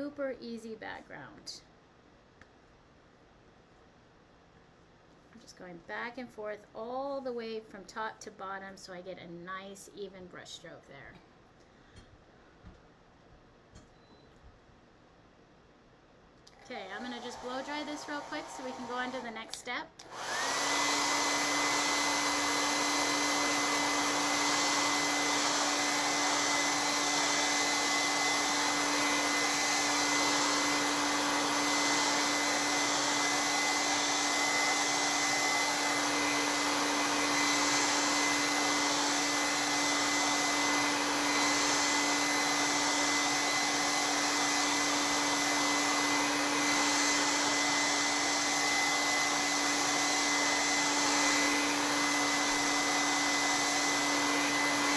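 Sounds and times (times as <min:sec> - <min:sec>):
hair dryer running: 0:16.5 - 0:54.9.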